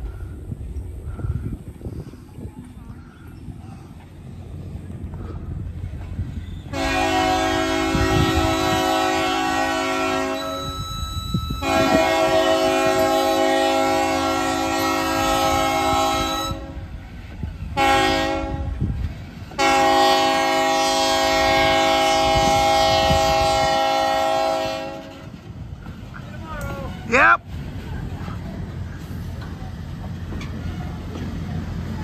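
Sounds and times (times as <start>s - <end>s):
train air horn blasts: 6.7s - 16.9s, 17.8s - 25.4s.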